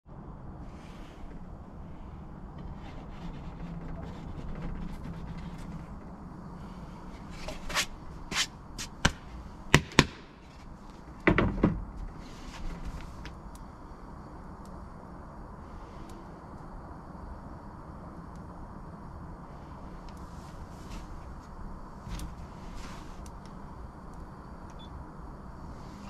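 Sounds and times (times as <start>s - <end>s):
steady low rumble: 0.1s - 26.0s.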